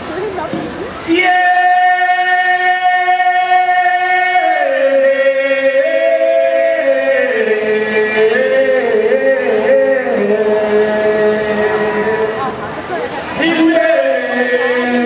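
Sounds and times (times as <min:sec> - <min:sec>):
person singing long held notes: 0:01.1 - 0:12.6.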